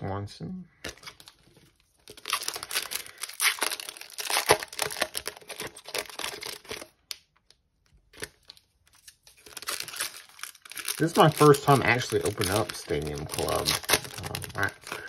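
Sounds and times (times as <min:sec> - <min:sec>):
foil wrapper crinkling: 0:01.0 - 0:15.0.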